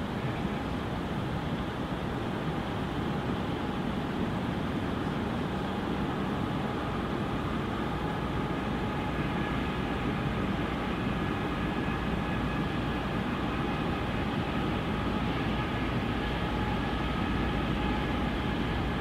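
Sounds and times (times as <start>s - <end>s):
freight train rumble: 0.0s - 19.0s.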